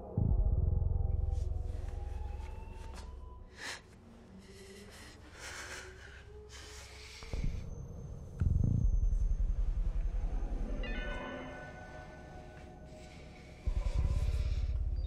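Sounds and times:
low droning score: 0:00.0 - 0:15.0
woman breathing shakily and sniffing: 0:03.5 - 0:07.8.

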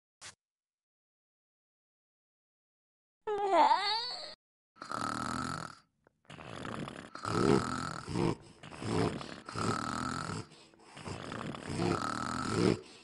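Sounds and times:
cartoon snoring and snorts: 0:04.8 - 0:13.0.

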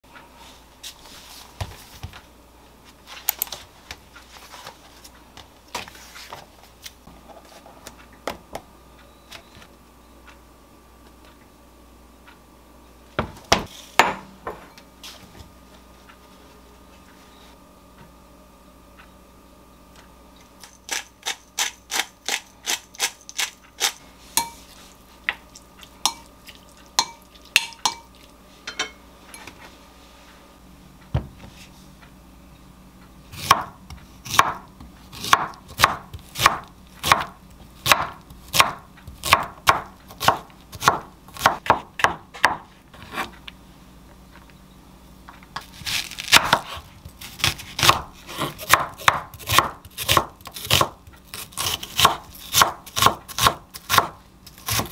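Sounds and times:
knife chopping on wooden board: 0:33.4 - 0:34.6, 0:35.2 - 0:43.3, 0:45.8 - 0:46.8, 0:47.4 - 0:54.9.

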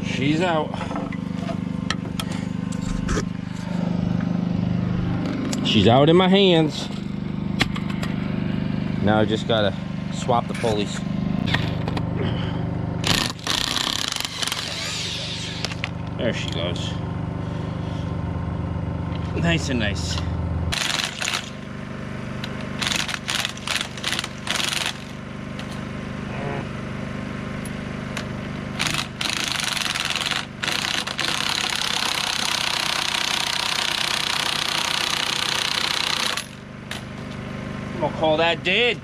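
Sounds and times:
steady low hum: 0:00.0 - 0:34.0
impact wrench hammering: 0:13.0 - 0:16.0, 0:20.7 - 0:21.6, 0:22.4 - 0:25.7, 0:28.2 - 0:37.1.

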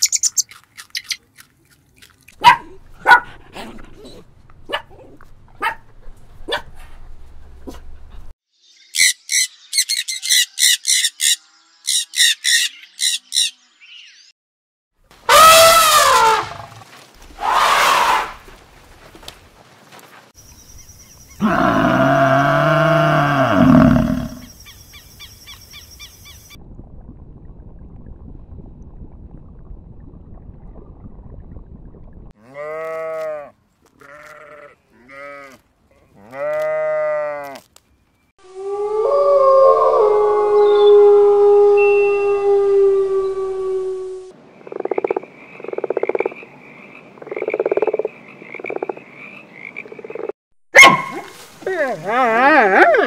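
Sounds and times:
animal call with falling pitch: 0:15.3 - 0:18.4, 0:38.4 - 0:44.3
lamb bleating: 0:32.4 - 0:35.6, 0:36.2 - 0:37.6
frog croaking: 0:44.6 - 0:50.4.

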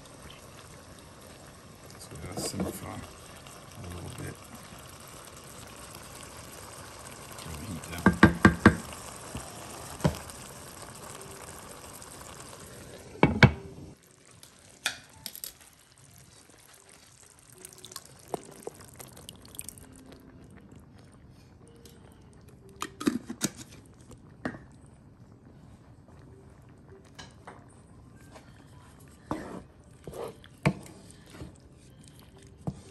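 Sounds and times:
sauce pouring into pan: 0:00.0 - 0:13.3, 0:14.0 - 0:20.6
goulash simmering in skillet: 0:00.0 - 0:32.9
utensil knocking against pan: 0:08.0 - 0:08.8.

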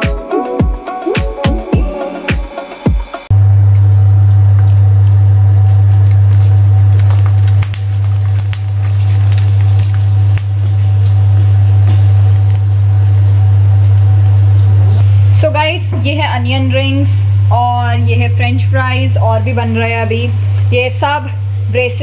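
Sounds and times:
loud low hum: 0:03.3 - 0:09.5, 0:10.3 - 0:20.6
oil sizzling and crackling: 0:03.4 - 0:15.1.

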